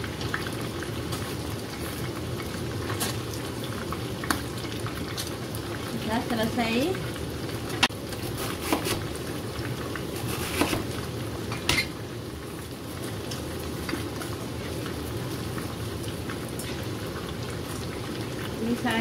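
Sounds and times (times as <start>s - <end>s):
fish frying in hot oil: 0.0s - 19.0s
cleaver chopping cabbage: 8.1s - 9.1s, 10.1s - 10.9s.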